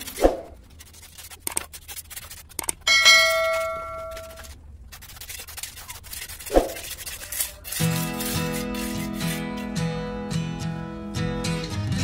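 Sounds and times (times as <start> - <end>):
bright bell-like ding: 2.9 - 4.1.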